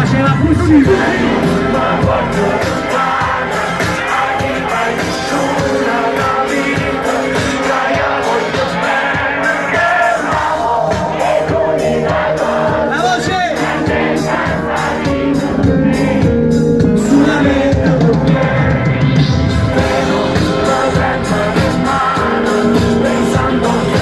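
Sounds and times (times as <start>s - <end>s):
person singing: 0.0s - 12.8s, 14.8s - 24.0s
crowd voices: 0.0s - 24.0s
live concert music: 0.0s - 24.0s.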